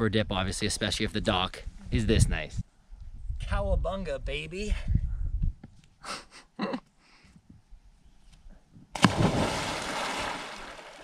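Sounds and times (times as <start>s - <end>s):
loud splash into water: 9.0s - 11.0s.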